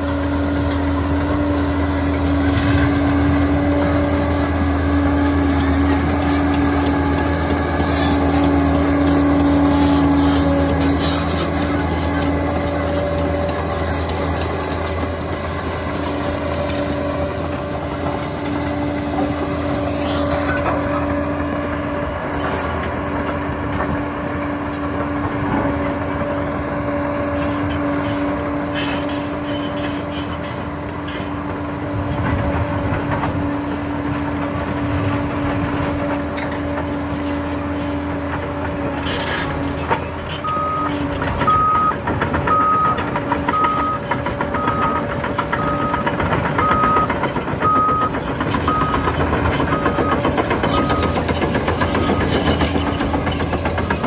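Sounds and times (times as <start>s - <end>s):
bulldozer diesel engine running: 0.0s - 54.0s
reversing alarm beeping: 40.4s - 52.8s.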